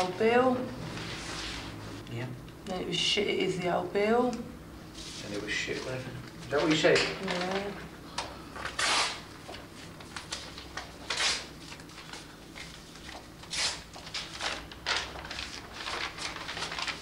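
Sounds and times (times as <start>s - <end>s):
paper rustling: 5.0s - 7.8s, 8.6s - 17.0s.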